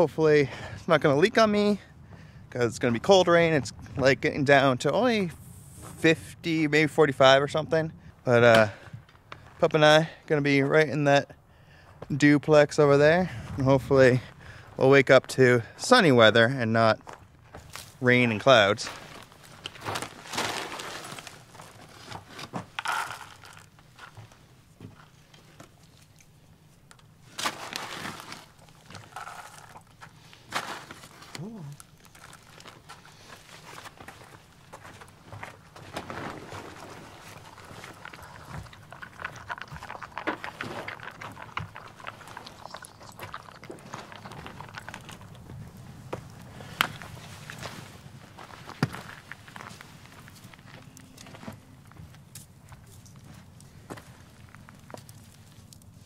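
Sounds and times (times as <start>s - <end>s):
dog crunching dry kibble: 18.9s - 24.4s, 25.0s - 47.8s, 48.4s - 56.0s
plastic bag crinkling: 19.0s - 24.1s, 35.1s - 47.6s.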